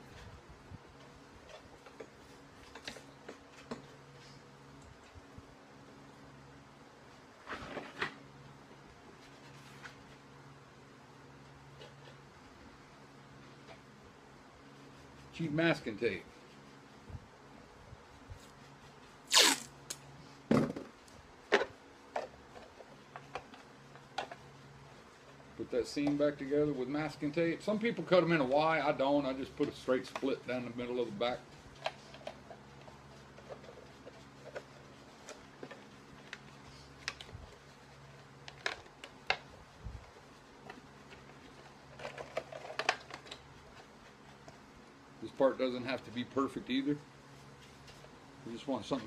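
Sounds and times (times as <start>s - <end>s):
faint steady hum: 0.0s - 49.0s
masking tape ripping off roll: 19.2s - 20.0s.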